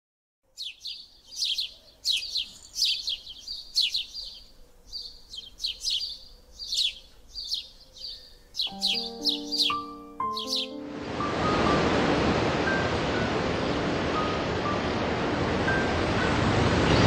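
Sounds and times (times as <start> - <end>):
bird chirping: 0.4 - 10.9.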